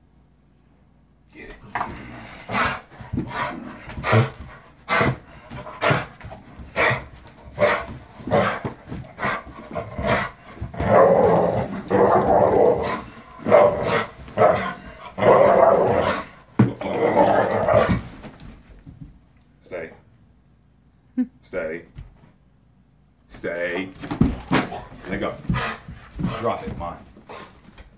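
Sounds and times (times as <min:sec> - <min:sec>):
dog growling: 0:01.4 - 0:18.2, 0:24.0 - 0:27.6.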